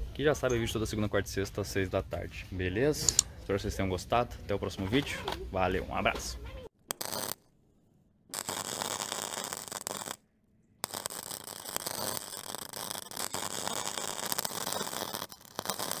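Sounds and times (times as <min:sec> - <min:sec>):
crackling glitch sound effect: 0:08.4 - 0:10.2, 0:10.8 - 0:16.0.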